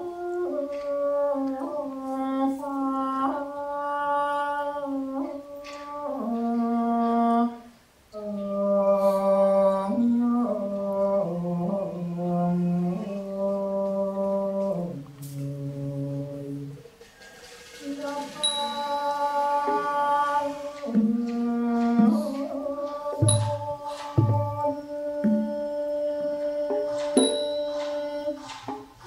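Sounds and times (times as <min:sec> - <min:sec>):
man singing unaccompanied: 0:17.8 - 0:28.6.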